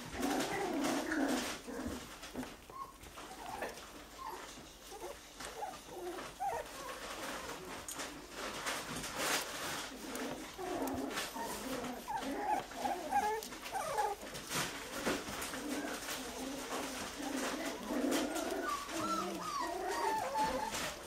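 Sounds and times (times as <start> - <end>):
puppies whimpering and squeaking: 0.0 - 21.0
smacking and rustling: 0.0 - 21.0.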